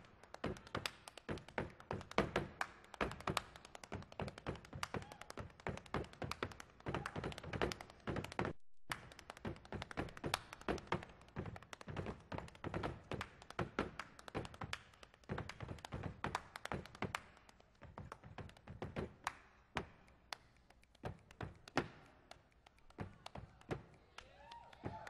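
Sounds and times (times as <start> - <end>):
hand claps: 0.0 - 25.0.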